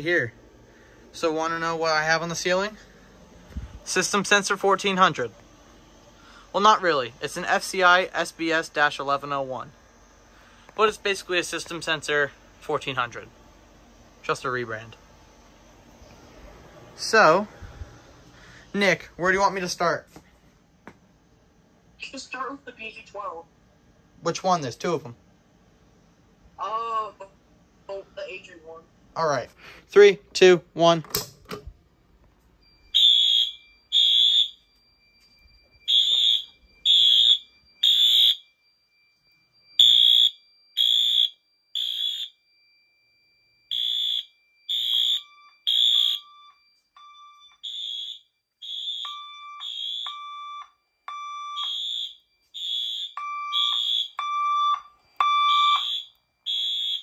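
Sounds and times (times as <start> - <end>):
lower alarm tone: 0.0 - 15.9, 32.5 - 57.0
fire alarm high-pitched blasts: 3.9 - 5.3, 6.2 - 13.2, 32.6 - 57.0.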